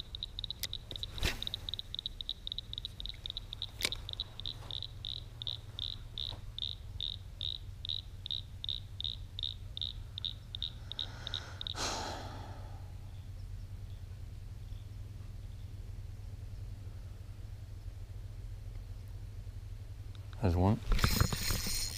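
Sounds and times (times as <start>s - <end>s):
sharp click: 0.0s - 4.8s
insect chirping: 0.0s - 14.0s, 20.9s - 21.9s.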